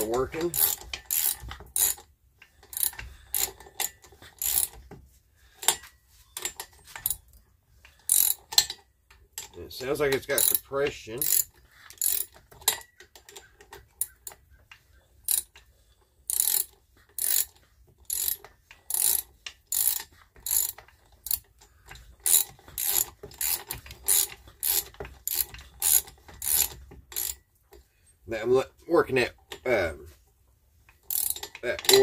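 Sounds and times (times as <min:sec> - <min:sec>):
lawnmower engine turned over by hand: 0:16.4 - 0:27.4.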